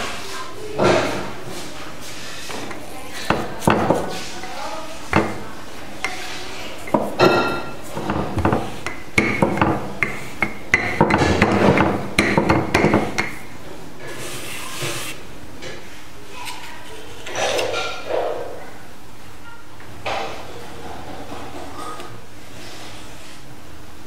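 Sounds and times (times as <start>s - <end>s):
rolling pin knocking over dough: 2.5s - 4.5s, 5.1s - 13.5s.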